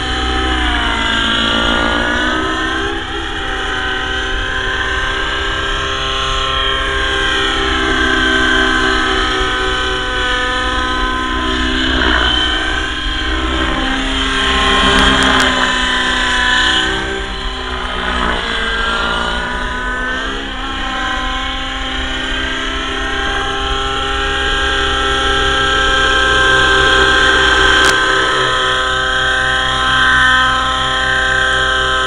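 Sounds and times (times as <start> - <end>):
rc helicopter engine whine: 0.0 - 32.0.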